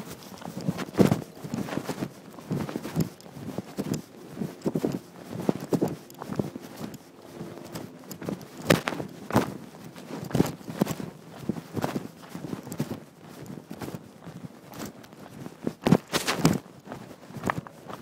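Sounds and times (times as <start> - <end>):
footsteps knocking and scuffing: 15.7 - 17.7.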